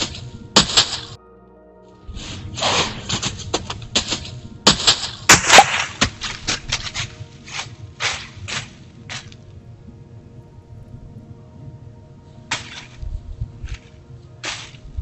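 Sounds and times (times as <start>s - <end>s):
footfalls crunching dry leaves: 0.0s - 1.2s, 2.1s - 9.6s, 12.5s - 15.0s.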